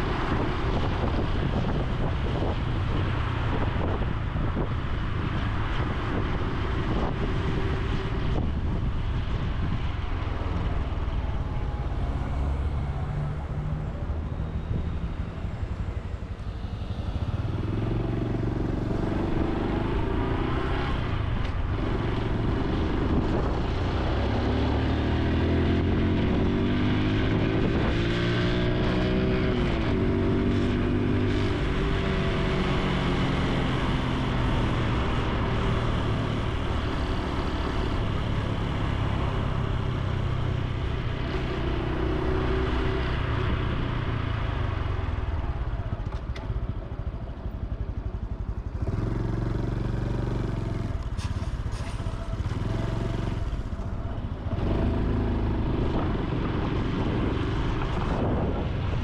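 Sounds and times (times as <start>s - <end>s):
motorcycle engine running: 43.4s - 59.0s.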